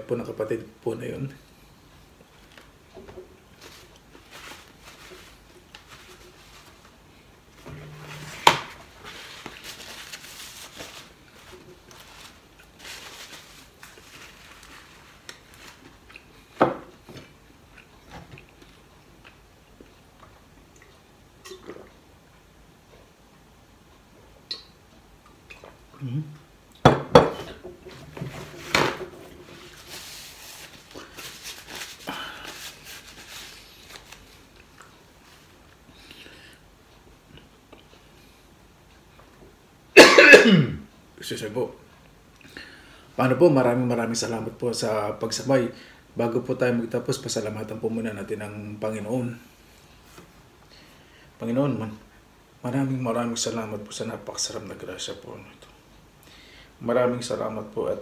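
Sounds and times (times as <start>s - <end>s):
paper napkin rustling: 3.6s - 7.0s, 7.6s - 16.0s, 27.9s - 35.5s.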